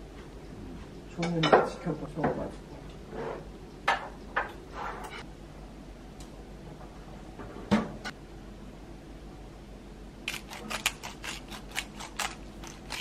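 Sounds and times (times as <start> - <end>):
pepper grinder clicking: 10.3 - 13.0.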